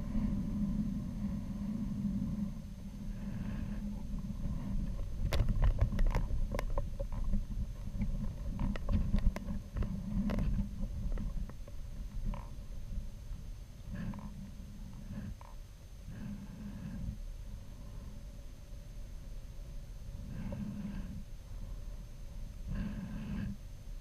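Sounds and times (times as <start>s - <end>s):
wind rumbling on microphone: 0.0s - 24.0s
rattling clicks and ticks: 4.9s - 12.6s.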